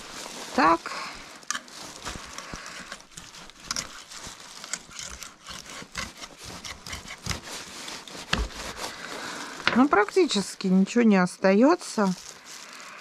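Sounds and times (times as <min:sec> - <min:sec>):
knife crunching through fish bones: 0:01.4 - 0:09.4
soft knife scraping: 0:01.4 - 0:10.4.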